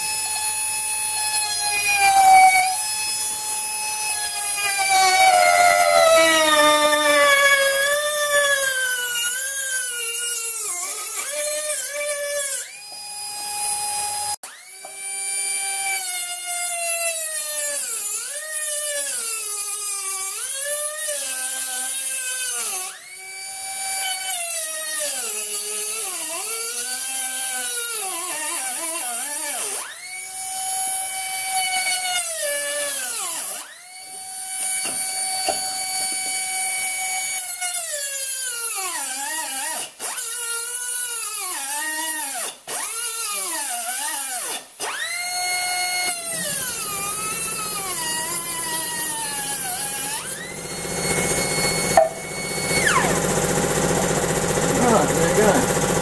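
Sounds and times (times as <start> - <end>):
die grinder cutting steel can: 0.0 - 13.0, 34.5 - 56.0.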